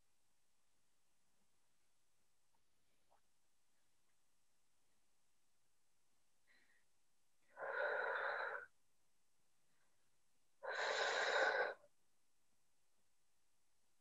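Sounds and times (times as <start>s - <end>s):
person breathing loudly: 7.5s - 8.7s, 10.6s - 11.8s.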